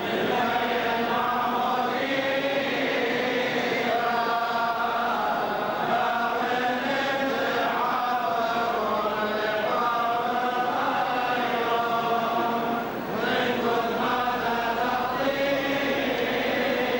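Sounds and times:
group chanting in unison: 0.0s - 16.9s.

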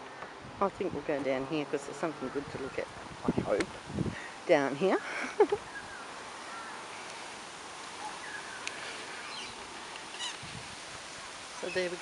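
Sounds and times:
outdoor background hiss: 0.0s - 12.0s
faint bird chirps: 8.0s - 10.4s.

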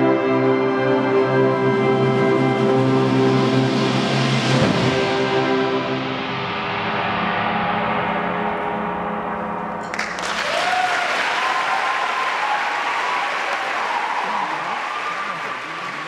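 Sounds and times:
audience applause: 9.8s - 16.0s.

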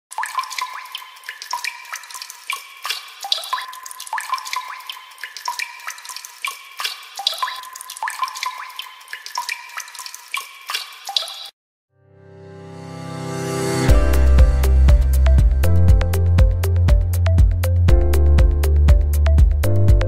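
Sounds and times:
water drops plinking into water: 0.1s - 11.5s
music: 12.0s - 20.0s.

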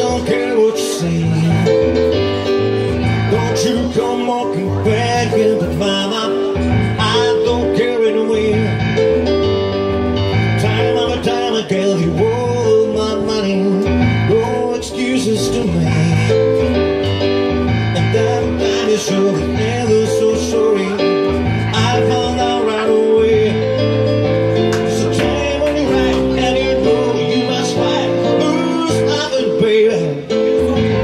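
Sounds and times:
live band music with guitar: 0.0s - 31.0s.

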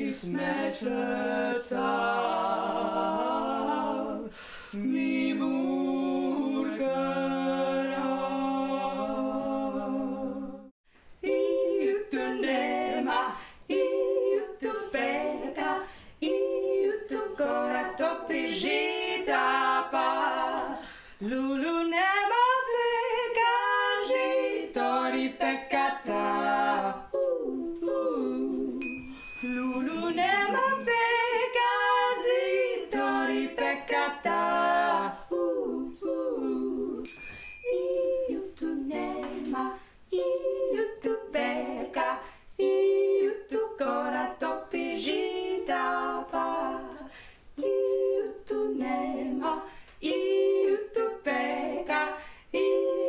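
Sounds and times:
women singing a cappella: 0.0s - 53.0s
high ringing sounds: 28.8s - 30.6s, 37.0s - 38.1s.

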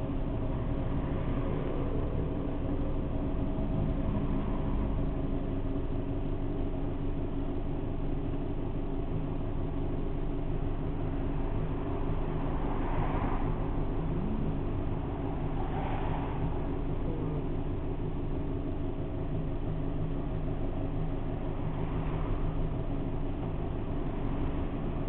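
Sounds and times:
low traffic rumble: 0.0s - 25.0s
vehicle engine idling: 0.0s - 25.0s.

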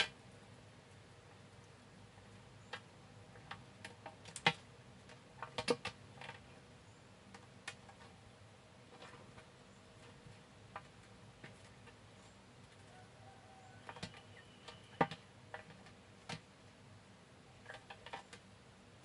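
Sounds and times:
small animal clicks and crunches: 17.6s - 18.5s.

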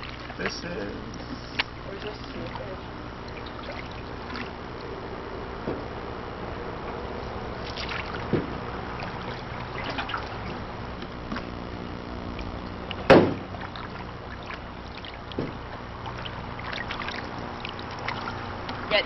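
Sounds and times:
water trickling off paddle: 0.0s - 19.0s
paddle knocking against hull: 5.6s - 6.0s, 7.6s - 11.5s, 12.9s - 18.8s.

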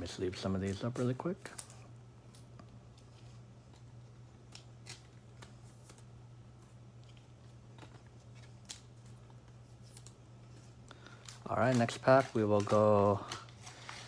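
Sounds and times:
cards rustling into plastic sleeves: 0.0s - 14.0s
steady low hum: 0.0s - 14.0s.

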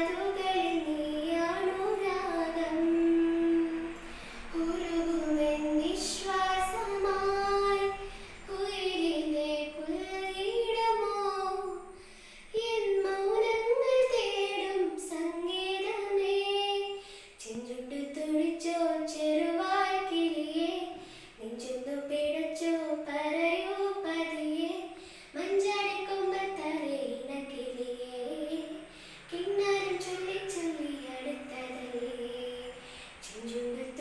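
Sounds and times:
girl singing unaccompanied: 0.0s - 34.0s
girl taking a breath: 4.0s - 4.5s, 11.9s - 12.6s, 17.0s - 17.4s, 21.0s - 21.4s, 25.0s - 25.4s, 28.9s - 29.3s.

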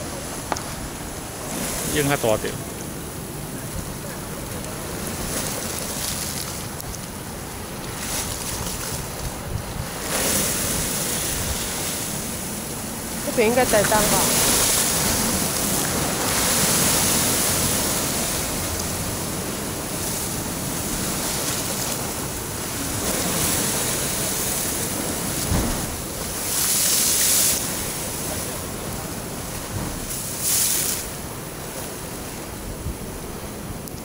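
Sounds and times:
waves breaking against rocks: 0.0s - 33.8s.

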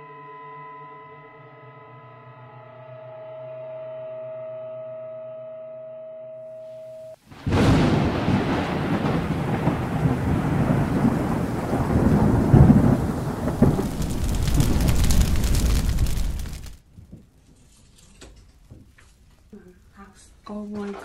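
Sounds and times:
steady rain: 7.2s - 16.9s, 18.8s - 21.0s
rumbling thunder: 7.3s - 16.8s.

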